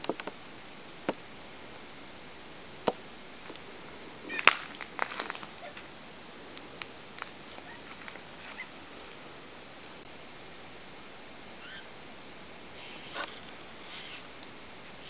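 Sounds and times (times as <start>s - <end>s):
garden hose spraying: 2.8s - 10.0s, 11.6s - 15.0s.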